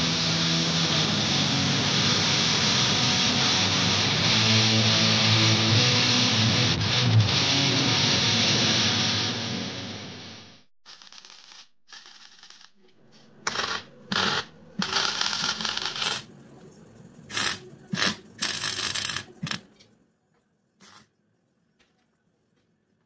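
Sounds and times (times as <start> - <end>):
crackling welding arc bursts: 13.5 - 16.3, 17.3 - 19.7.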